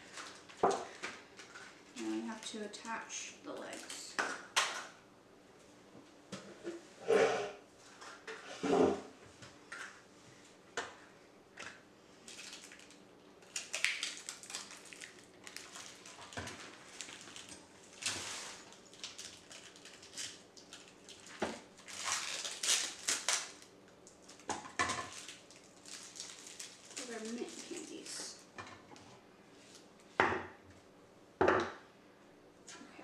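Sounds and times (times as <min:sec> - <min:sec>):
plastic packaging crinkling: 0:00.0 - 0:03.0, 0:03.6 - 0:04.2, 0:12.2 - 0:28.5.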